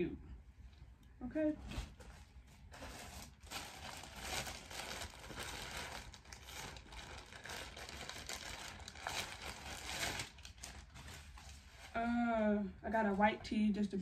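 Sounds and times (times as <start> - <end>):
plastic bag crinkling: 2.5 - 12.0.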